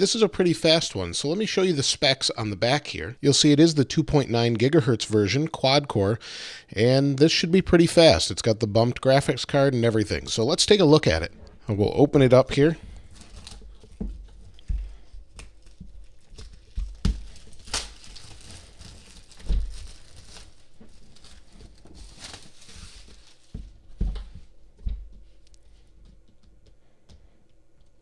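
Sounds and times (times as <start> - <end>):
plastic shrink-wrap tearing: 13.0 - 14.0, 15.3 - 23.6.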